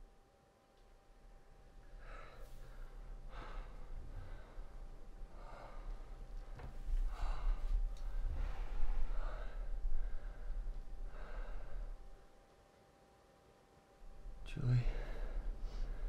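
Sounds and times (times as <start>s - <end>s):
man breathing heavily: 1.8s - 12.4s, 14.8s - 16.0s.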